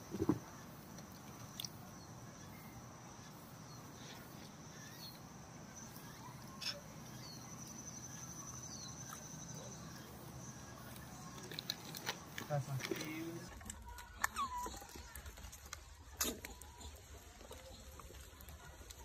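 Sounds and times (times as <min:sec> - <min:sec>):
high-pitched insect trill: 0:01.4 - 0:13.5.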